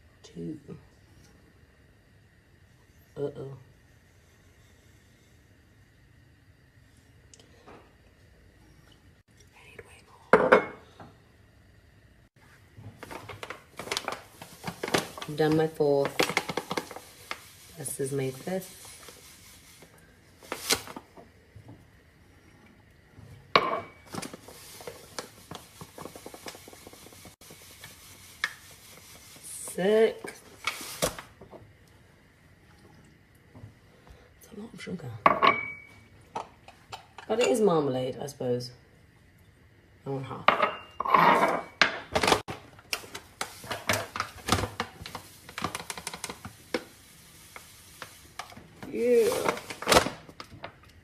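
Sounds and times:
paper bag crinkling: 13.0s - 17.5s.

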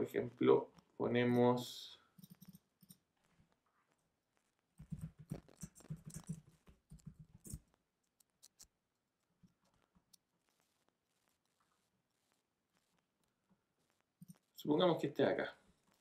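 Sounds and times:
computer keyboard typing: 4.8s - 8.7s.

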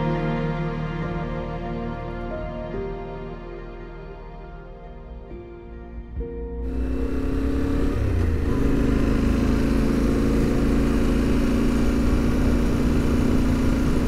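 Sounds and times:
motorcycle engine running: 6.6s - 14.0s.

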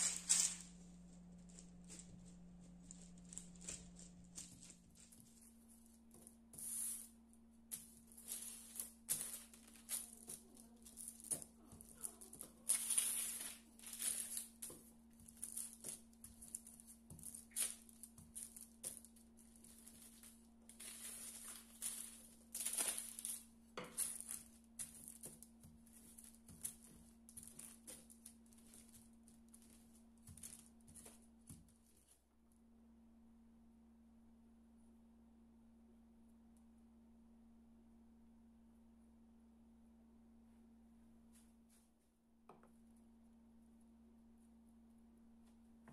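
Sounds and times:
rolling pin on parchment paper: 0.0s - 32.1s
faint low hum: 0.0s - 45.9s.

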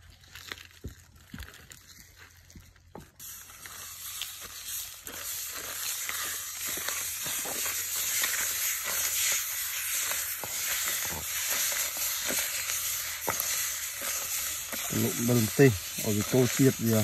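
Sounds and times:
wet crackles in a clay mortar: 0.0s - 17.0s
steady high hiss: 3.2s - 17.0s.

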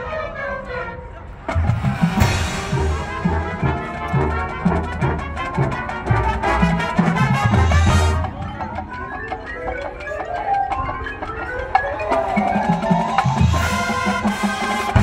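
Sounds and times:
low brass and bass notes: 0.1s - 8.6s, 13.4s - 15.0s
mallet percussion: 1.5s - 15.0s.

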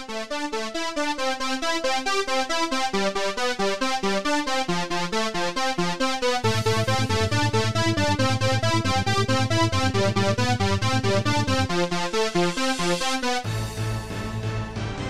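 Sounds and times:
repeating synth notes: 6.4s - 13.4s
pulsing bass line: 6.4s - 15.0s.

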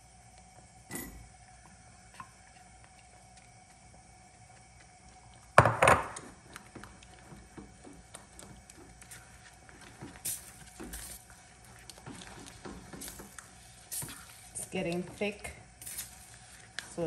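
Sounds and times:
spatula stirring in saucepan: 6.2s - 17.0s.

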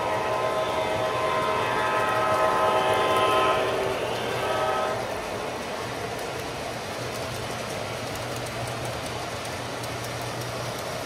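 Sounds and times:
model train horn blast: 0.0s - 5.3s
model train rumbling on track: 0.0s - 11.0s.

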